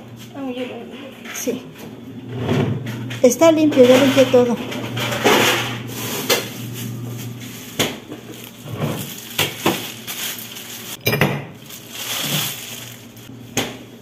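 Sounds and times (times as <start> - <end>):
ice cubes clinking in glass: 9.0 - 13.0.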